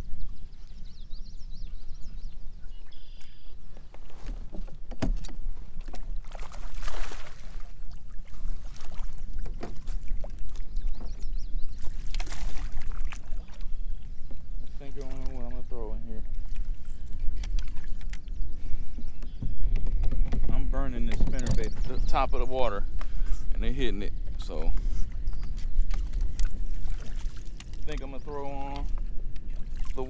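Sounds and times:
water lapping against hull: 0:00.0 - 0:30.0
knocks on boat: 0:04.4 - 0:05.4, 0:19.4 - 0:22.0.

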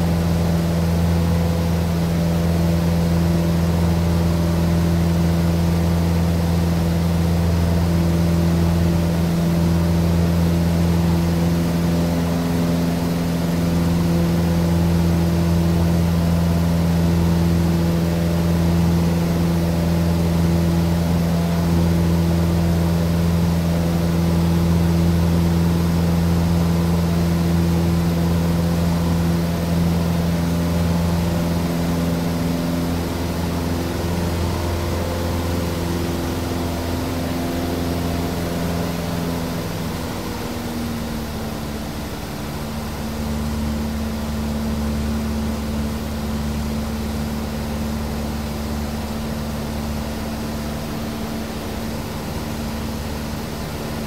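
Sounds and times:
airplane engine droning in cabin: 0:00.0 - 0:54.0.

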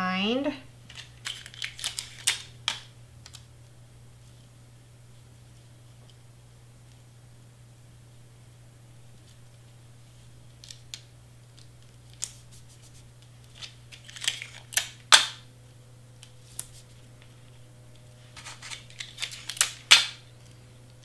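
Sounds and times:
paper crinkling: 0:00.9 - 0:02.5, 0:10.6 - 0:15.0, 0:18.2 - 0:20.6.

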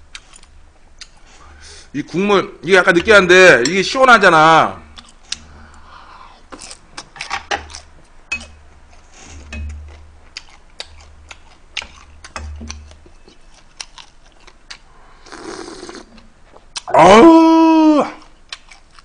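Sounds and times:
chewing: 0:06.5 - 0:16.9, 0:18.2 - 0:19.0.

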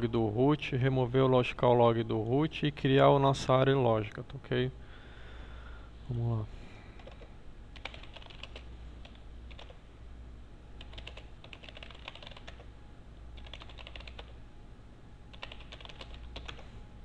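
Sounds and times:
low steady hum: 0:00.0 - 0:17.0
keyboard typing: 0:07.0 - 0:09.8, 0:10.8 - 0:12.7, 0:13.4 - 0:14.4, 0:15.3 - 0:16.7.

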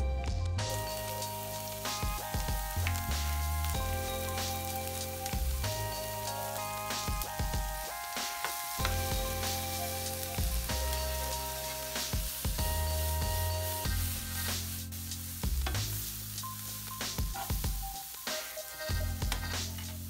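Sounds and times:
background music with heavy bass: 0:00.0 - 0:20.0
vegetables sizzling in a frying pan: 0:00.6 - 0:20.0
metal spoon stirring in pan: 0:18.3 - 0:20.0.

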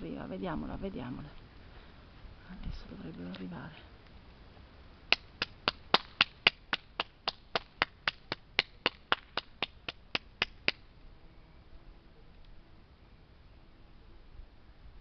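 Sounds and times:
hand claps: 0:05.1 - 0:10.8.

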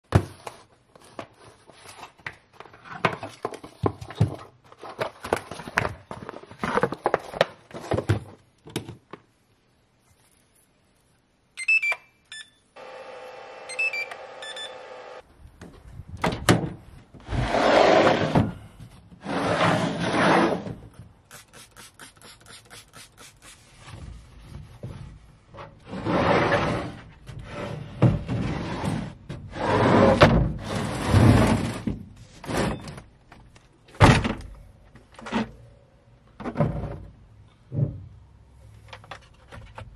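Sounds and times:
charger short beeps: 0:13.7 - 0:14.8
spray bottle hissing: 0:21.3 - 0:23.7.

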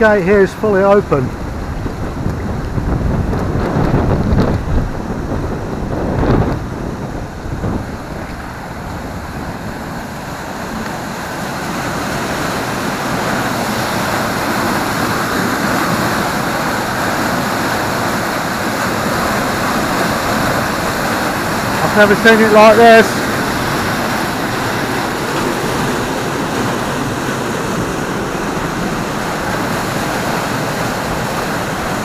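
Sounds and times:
wind buffeting microphone: 0:00.0 - 0:22.1
floodwater rushing through sluice: 0:00.0 - 0:32.0.

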